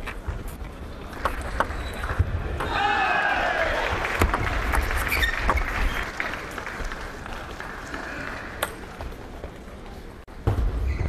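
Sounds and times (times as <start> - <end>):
spectators applauding: 2.8 - 9.0.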